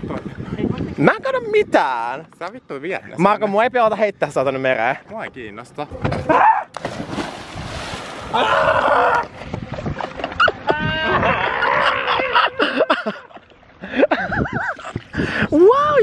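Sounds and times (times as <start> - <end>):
water splashing: 6.0 - 10.5
person shrieking and yelling: 8.3 - 9.2, 10.7 - 12.8.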